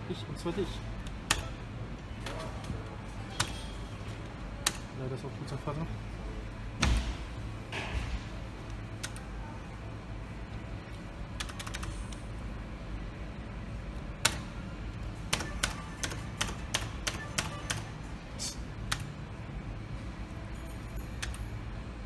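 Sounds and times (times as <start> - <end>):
steady low hum: 0.0 - 22.0
slot machine clicks: 1.1 - 1.6, 15.2 - 18.0.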